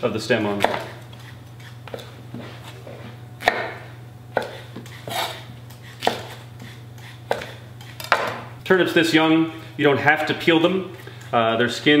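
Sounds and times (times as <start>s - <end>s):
knife striking cutting board: 0.6s - 1.0s, 3.4s - 3.8s, 6.0s - 6.4s, 7.3s - 8.5s.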